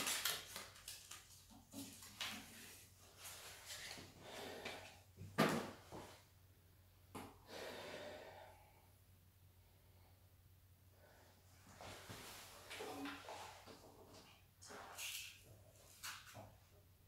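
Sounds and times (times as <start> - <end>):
plastic wrap rustling: 0.0 - 4.1.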